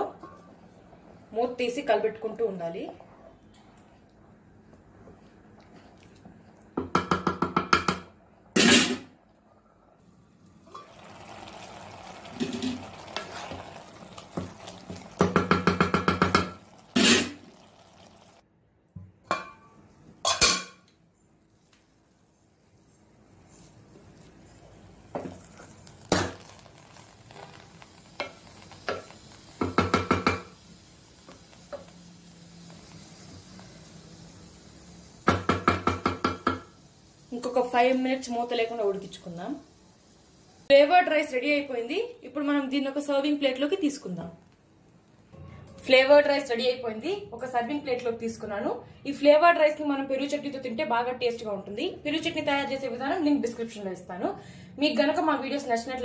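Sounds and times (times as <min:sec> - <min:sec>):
spatula tapping pan: 0:06.8 - 0:08.1, 0:15.2 - 0:16.6, 0:28.2 - 0:30.5, 0:35.3 - 0:36.7
rice simmering hiss: 0:10.4 - 0:18.4, 0:21.4 - 0:41.7
spatula stirring rice in pan: 0:12.4 - 0:17.8.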